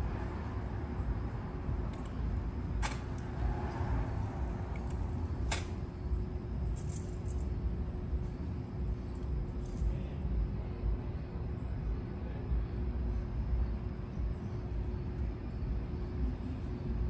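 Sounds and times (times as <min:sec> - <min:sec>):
faint hum: 0:00.0 - 0:17.0
keys jangling: 0:06.7 - 0:07.5, 0:09.1 - 0:10.0.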